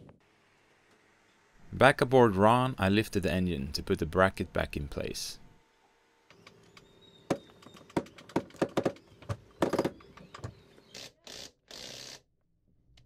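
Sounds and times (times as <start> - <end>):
deck winch clicking and knocking: 6.3 - 10.7.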